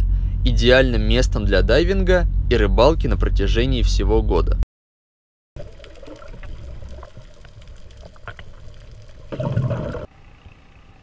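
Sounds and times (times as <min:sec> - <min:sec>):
muffled underwater rumble: 0:00.0 - 0:04.6
sharp clicks underwater: 0:05.6 - 0:10.1.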